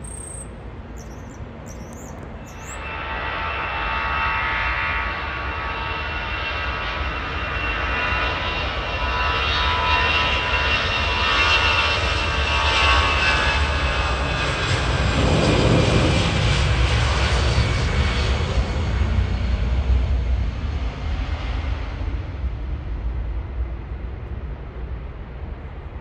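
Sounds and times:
jet engines whining: 0.0s - 8.6s, 10.0s - 19.6s
deep rumble: 14.8s - 17.2s.

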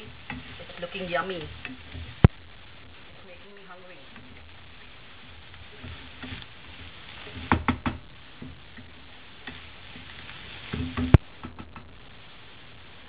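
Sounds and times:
wooden spatula scraping pan: 0.0s - 2.3s, 2.9s - 11.2s.

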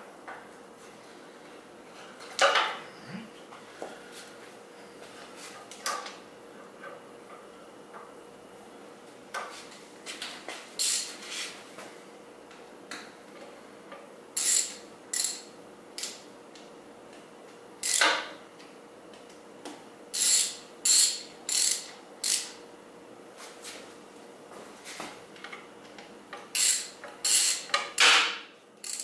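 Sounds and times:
ratchet wrench clicking: 10.8s - 11.1s, 14.4s - 16.2s, 17.8s - 18.2s, 20.2s - 22.6s, 26.5s - 27.8s.

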